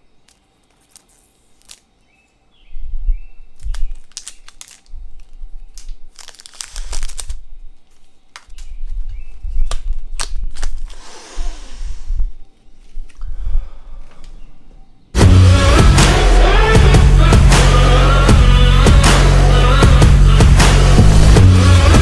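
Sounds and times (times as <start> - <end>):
cellophane wrapper crinkling: 0.2 - 1.9, 3.5 - 9.0, 9.6 - 11.0.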